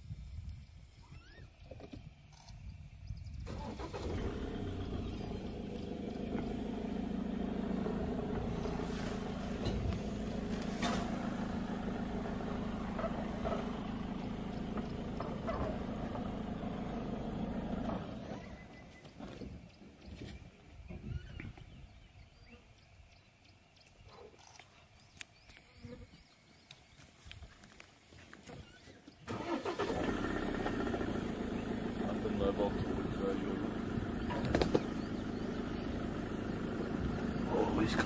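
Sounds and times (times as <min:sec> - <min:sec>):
vehicle engine running: 0:03.2 - 0:20.1, 0:29.3 - 0:38.0.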